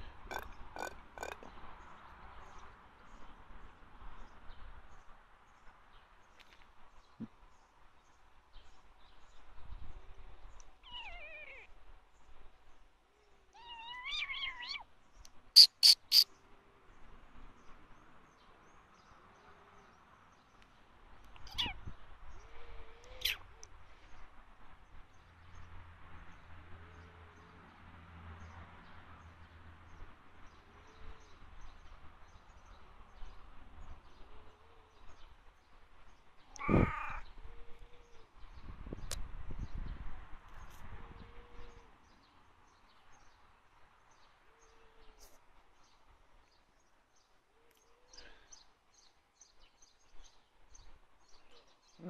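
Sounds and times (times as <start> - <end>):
cat meowing: 10.8 - 11.7, 13.5 - 14.8, 21.4 - 21.8, 36.6 - 37.2.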